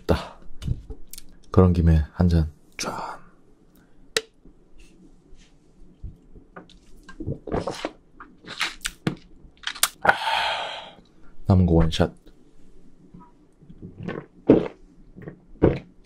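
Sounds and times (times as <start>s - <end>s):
breathy exhale: 10.0s - 11.0s.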